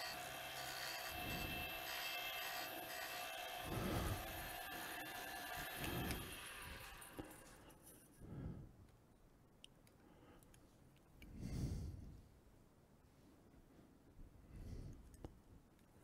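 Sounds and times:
lathe motor whine: 0.0 - 7.6.

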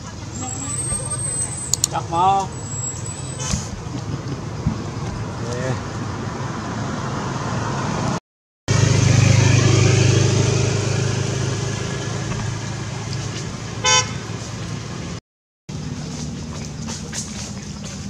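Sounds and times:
motor vehicle running: 0.0 - 18.0
short horn toot: 13.8 - 14.3.

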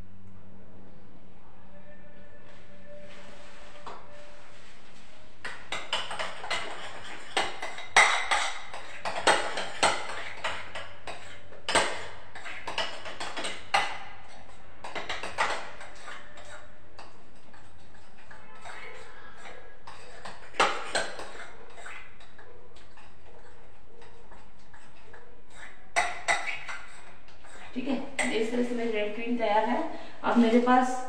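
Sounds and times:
spoon clinking against a bowl: 5.4 - 28.4.

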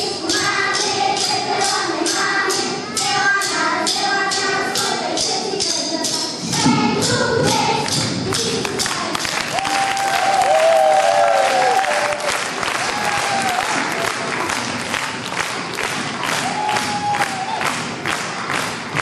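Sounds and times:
children singing: 0.0 - 9.6.

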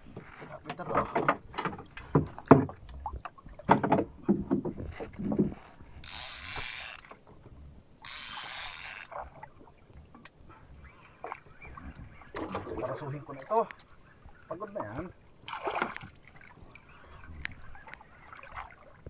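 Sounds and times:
rod and boat knocks: 0.1 - 3.0, 3.6 - 5.6
fishing reel buzzing: 5.9 - 7.2, 8.0 - 9.2.

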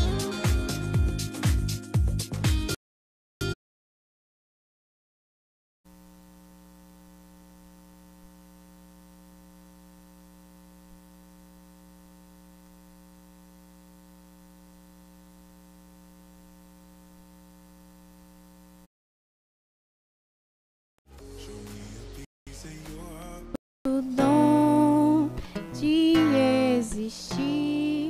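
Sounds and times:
electrical mains hum: 5.9 - 18.9.

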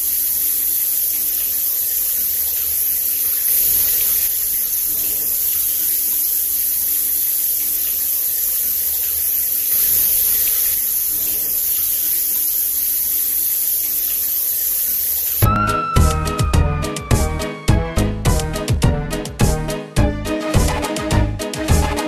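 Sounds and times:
music: 15.5 - 22.0.

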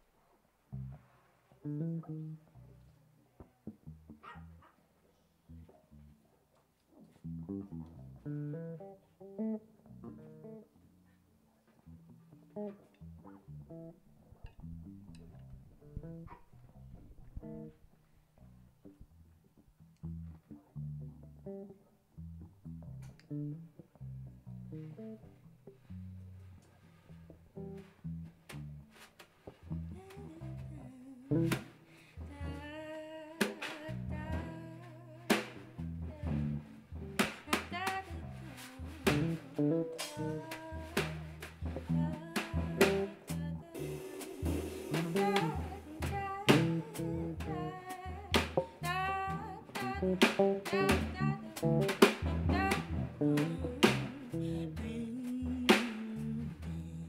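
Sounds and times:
electric bass plucked notes: 0.7 - 1.0, 1.6 - 4.6, 5.5 - 6.3, 7.2 - 57.0
drum hits: 43.8 - 45.8.

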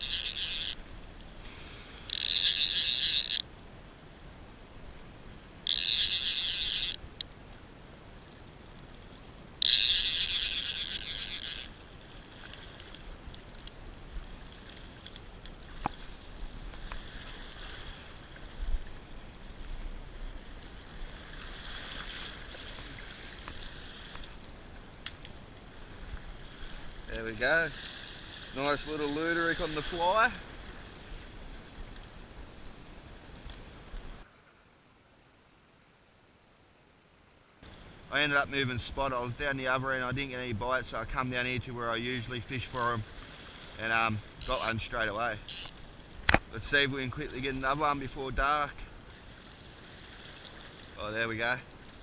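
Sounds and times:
fishing reel ratchet rasping: 0.0 - 0.8, 2.0 - 3.5, 5.6 - 7.0, 9.6 - 11.8, 43.6 - 45.8.

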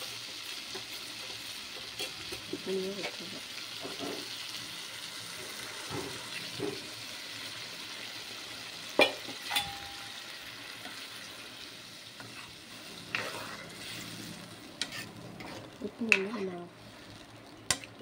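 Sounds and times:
gravy sizzling in a pan: 0.0 - 18.0.

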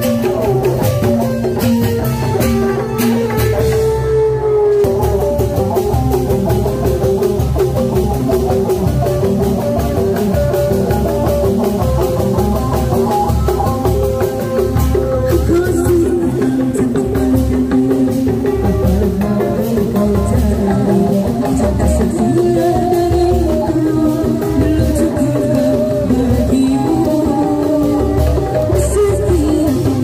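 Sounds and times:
live band music over loudspeakers: 0.0 - 30.0.

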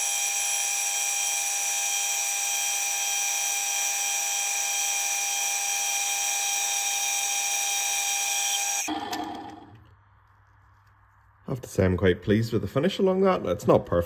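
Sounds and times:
lathe whining: 0.0 - 9.9.

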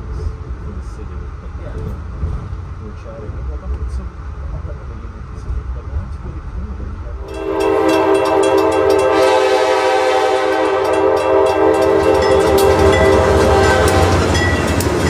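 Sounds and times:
passing train rumble: 0.0 - 15.0
train horn blast: 7.2 - 14.8
wheels clicking on rail joints: 7.3 - 15.0.

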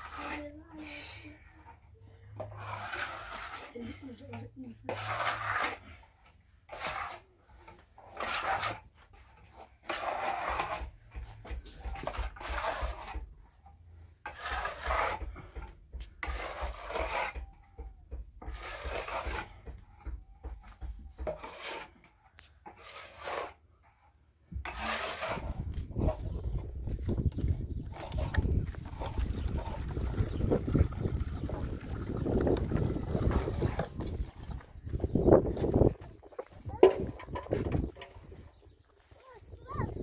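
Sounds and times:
rubbing strokes: 0.0 - 15.6, 18.4 - 26.3.

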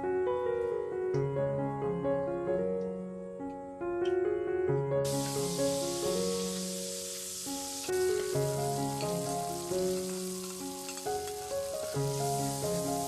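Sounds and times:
background music sustained notes: 0.0 - 13.0
spices sizzling in oil: 5.0 - 13.0.

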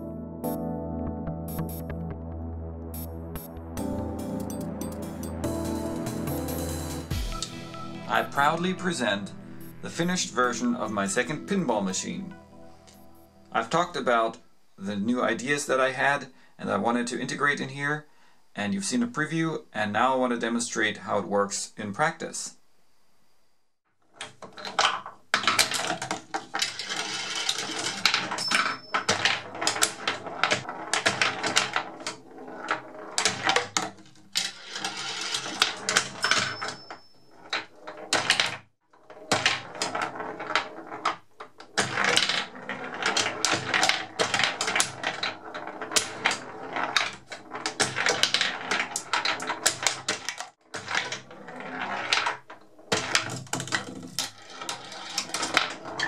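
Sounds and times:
glass marble rolling and clattering: 24.4 - 38.5, 39.1 - 56.0.

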